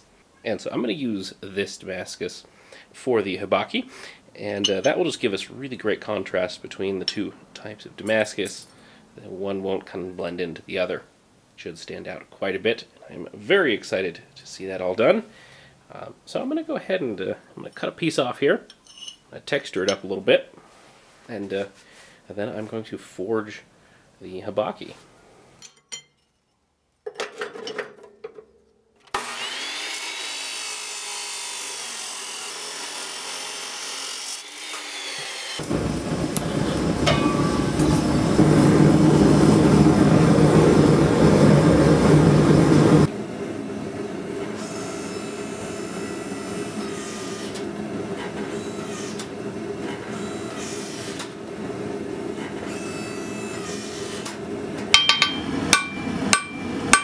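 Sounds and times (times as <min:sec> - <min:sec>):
chop saw cutting steel: 0:29.1 - 0:35.7, 0:44.6 - 0:47.6, 0:50.2 - 0:51.3, 0:52.6 - 0:54.4, 0:55.0 - 0:57.0
gas forge roaring: 0:35.6 - 0:52.7, 0:53.5 - 0:57.0.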